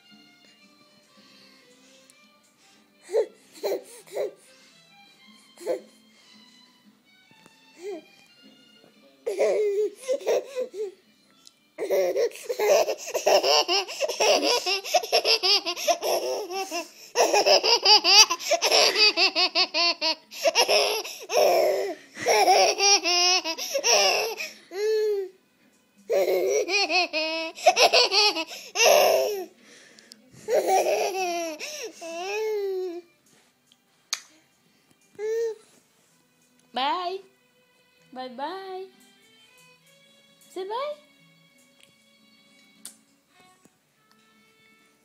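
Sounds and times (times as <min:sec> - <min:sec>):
baby laughing: 0:03.1 - 0:04.4, 0:09.3 - 0:11.0, 0:11.8 - 0:25.3, 0:26.1 - 0:29.5, 0:30.4 - 0:33.0.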